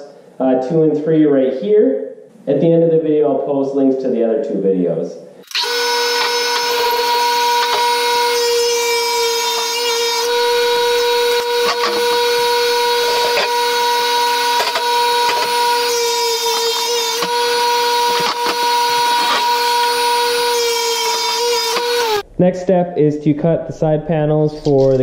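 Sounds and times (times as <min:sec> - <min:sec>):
table saw whining: 0:05.4 - 0:22.2.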